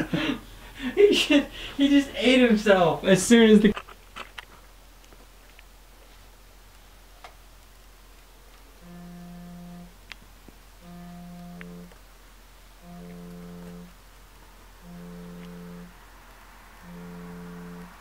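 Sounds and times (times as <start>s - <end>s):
phone buzzing tone: 8.8s - 10.0s, 10.8s - 12.0s, 12.8s - 14.0s, 14.8s - 16.0s, 16.8s - 18.0s.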